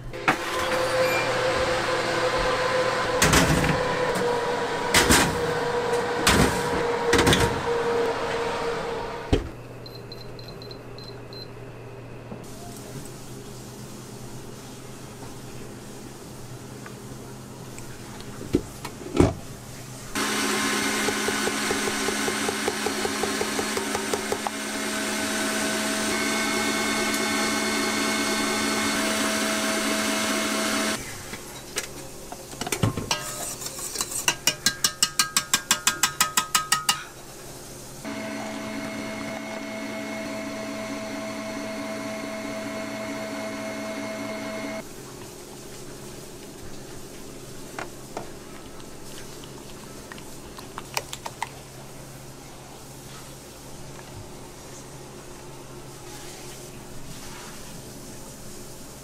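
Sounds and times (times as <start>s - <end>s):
stand mixer whisking cream: 20.2s - 31.0s, 38.1s - 44.8s.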